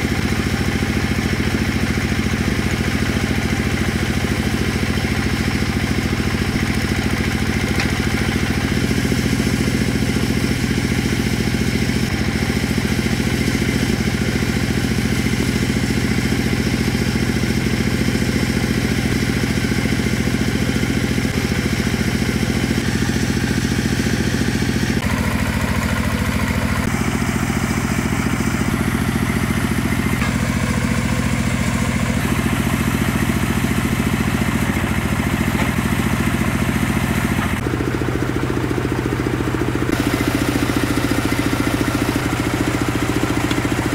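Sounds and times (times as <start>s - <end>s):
tractor engine running: 0.0s - 43.9s
hydraulics pulling drill pipes: 30.0s - 37.7s, 39.9s - 43.9s.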